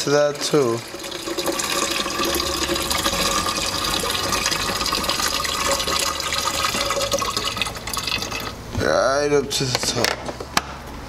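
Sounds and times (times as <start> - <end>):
water pouring from plastic jug: 0.0 - 8.6.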